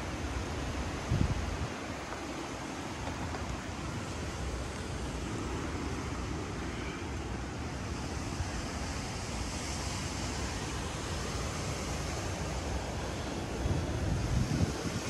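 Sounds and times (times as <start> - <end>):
wind buffeting microphone: 0.0 - 6.6, 10.3 - 15.0
wind and rain rushing: 0.0 - 15.0.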